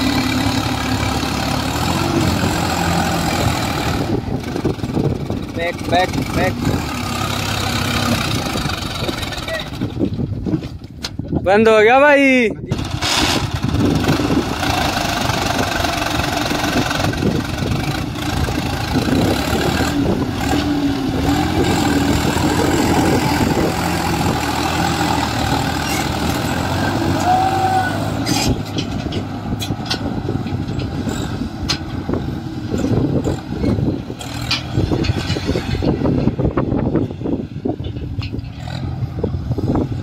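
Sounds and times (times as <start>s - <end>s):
tractor diesel engine under load: 0.0s - 40.0s.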